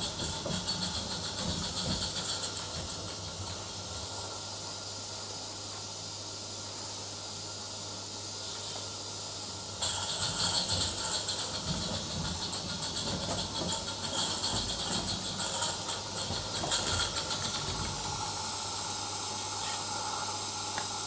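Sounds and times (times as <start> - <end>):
model train clattering on track: 0.0 - 3.6, 9.8 - 18.2
steam hissing: 9.8 - 21.0.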